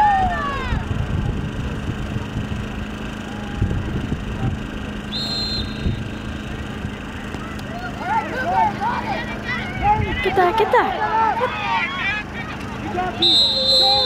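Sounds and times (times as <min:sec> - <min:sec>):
people shouting: 0:00.0 - 0:00.9, 0:07.4 - 0:14.0
low hum and rumble: 0:00.0 - 0:14.0
referee whistle blast: 0:05.1 - 0:06.2, 0:13.2 - 0:14.0.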